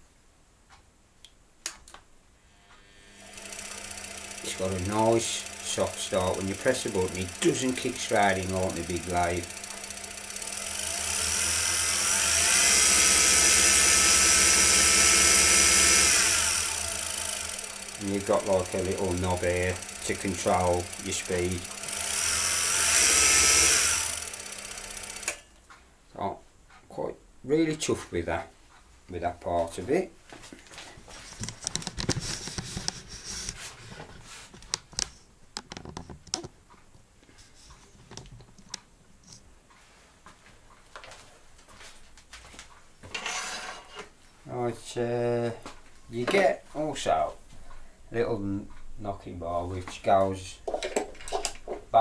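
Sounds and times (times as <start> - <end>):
wood lathe motor whine: 2.6 - 25.4
camera handling rustling: 30.7 - 36.5
camera clicks and knocks: 31.4 - 33.0, 34.6 - 36.6.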